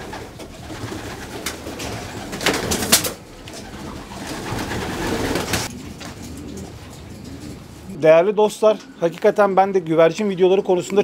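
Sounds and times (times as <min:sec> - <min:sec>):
pigeons cooing: 0:00.0 - 0:08.0.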